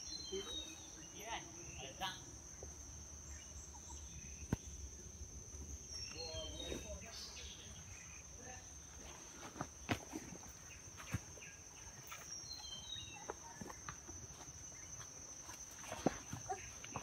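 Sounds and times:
footsteps on rock: 8.9 - 17.0.

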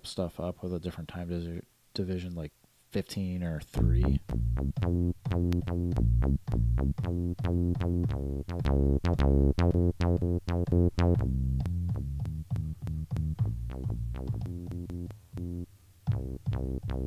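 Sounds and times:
chopped bass notes: 3.8 - 17.0
clicks at sample cuts: 3.8 - 17.0.

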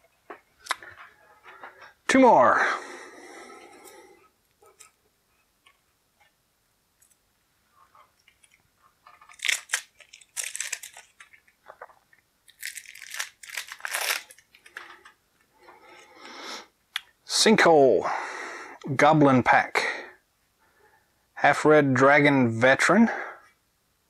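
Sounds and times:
plastic wrap crinkling and tearing: 8.2 - 15.2.

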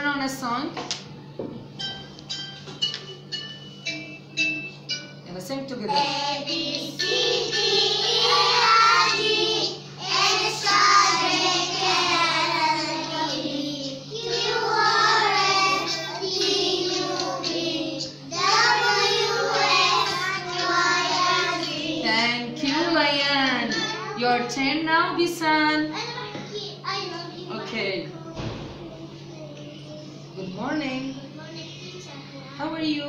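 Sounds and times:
children singing: 5.9 - 22.1.

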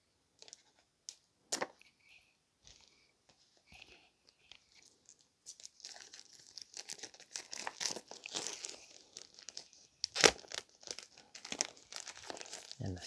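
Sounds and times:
plastic wrap crinkling and tearing: 4.7 - 13.0.

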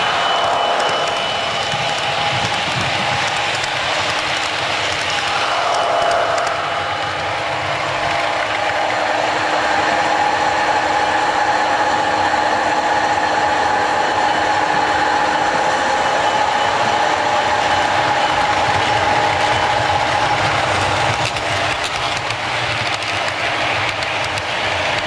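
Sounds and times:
constant whine: 0.0 - 25.0
model trains running: 0.0 - 25.0.

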